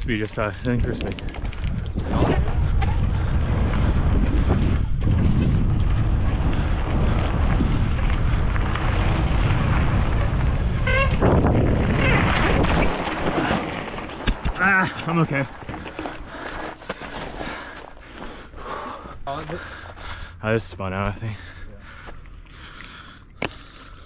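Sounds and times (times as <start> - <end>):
wind buffeting microphone: 0.0 - 16.5
bike rolling rumble: 0.0 - 24.0.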